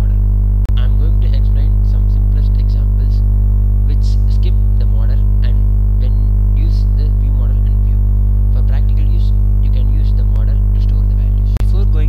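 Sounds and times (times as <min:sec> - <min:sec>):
electrical mains hum: 0:00.0 - 0:12.0
faint voice: 0:00.8 - 0:03.2, 0:03.9 - 0:08.0.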